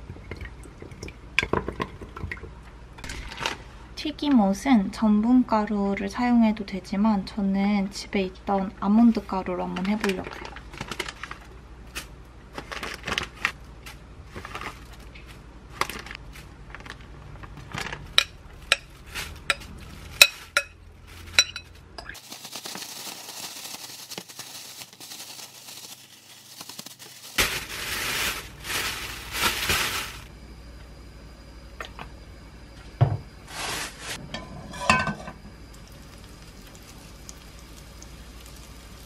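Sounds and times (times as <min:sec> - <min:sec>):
plastic bag crinkling: 0:09.8 - 0:11.5, 0:12.5 - 0:13.6, 0:14.3 - 0:30.3, 0:36.0 - 0:39.0.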